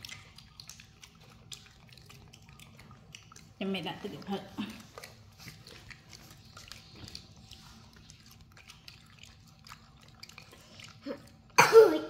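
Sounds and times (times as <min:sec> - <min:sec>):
monkeys chewing shrimps: 0:00.0 - 0:11.6
monkey cough-like vocal sound: 0:11.1 - 0:12.0.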